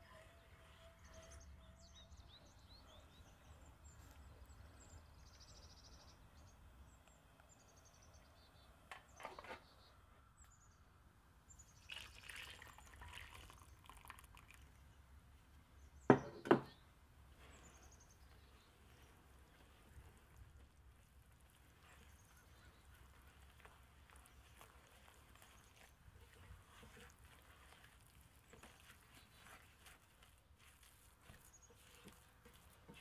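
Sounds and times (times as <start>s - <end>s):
faint bird chirps: 0.0s - 10.9s
spatula stirring batter: 18.2s - 33.0s.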